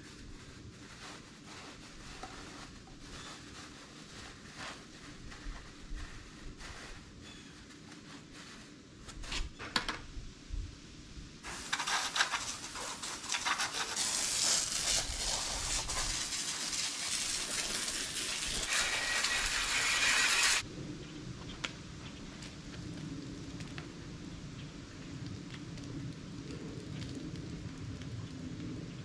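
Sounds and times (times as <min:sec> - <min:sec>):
garden hose spraying water: 0:11.4 - 0:20.7.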